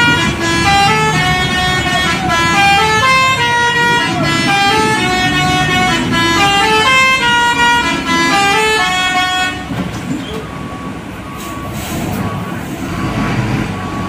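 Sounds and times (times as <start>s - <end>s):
musical vehicle horn tune: 0.0s - 9.7s
diesel truck engine rumble: 0.0s - 14.0s.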